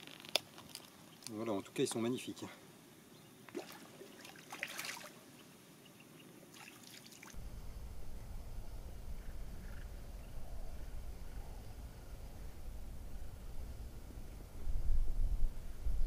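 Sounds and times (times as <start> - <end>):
water splashing: 3.5 - 5.3, 6.4 - 7.4
low rumble: 7.4 - 16.0.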